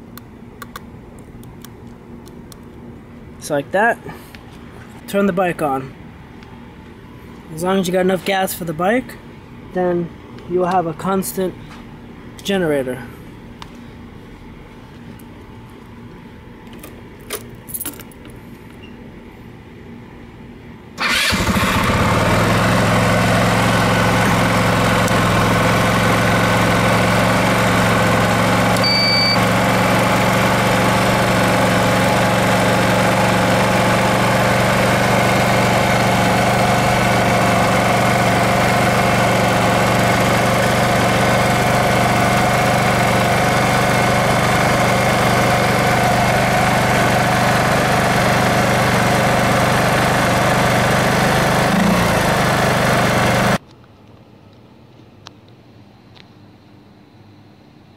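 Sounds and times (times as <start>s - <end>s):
motorcycle engine starting and idling: 21.0s - 53.6s
short electronic beep: 28.8s - 29.4s.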